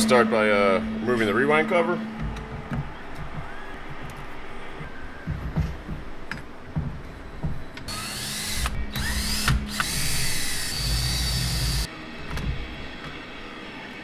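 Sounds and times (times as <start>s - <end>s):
cordless drill motor whining: 7.9s - 11.9s.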